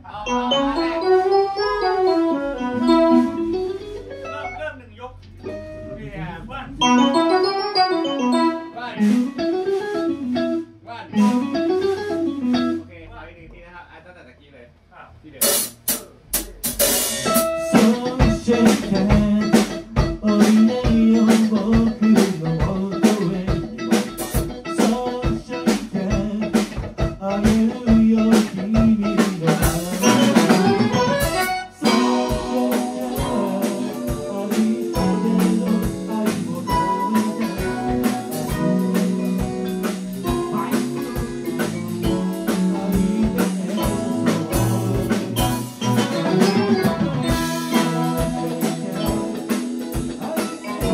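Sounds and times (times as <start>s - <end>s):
small live band playing: 0.0s - 13.1s, 15.4s - 50.9s
saxophone: 0.3s - 4.3s, 30.0s - 34.2s, 43.8s - 49.3s
drum kit steady beat: 2.2s - 4.6s, 9.0s - 12.8s, 15.4s - 50.9s.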